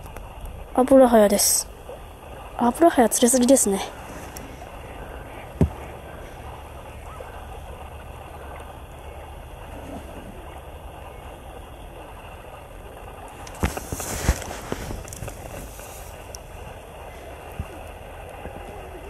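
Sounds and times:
shallow river running: 0.0 - 19.0
dull thump: 3.9 - 7.4.

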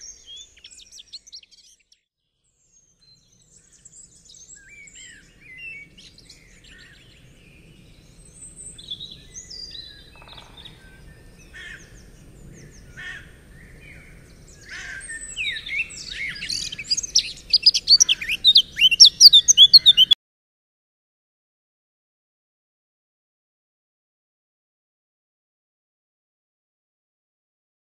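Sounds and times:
songbirds chirping and singing: 0.0 - 2.0, 2.8 - 20.2.

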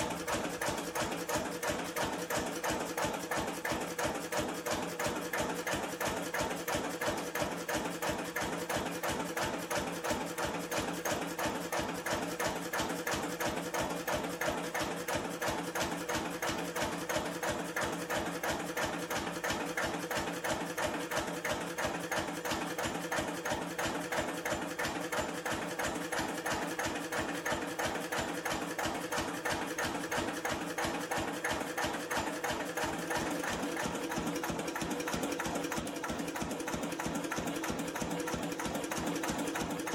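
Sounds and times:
diesel stationary engine running: 30.5 - 39.9.

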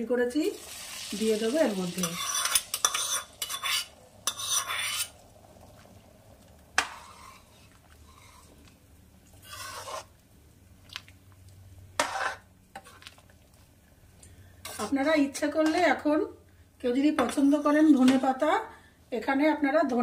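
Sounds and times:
hot oil sizzling: 0.2 - 10.4
metal ladle scraping a pot: 2.0 - 5.2, 6.8 - 8.7, 9.3 - 10.1, 12.0 - 13.2, 14.6 - 15.8.

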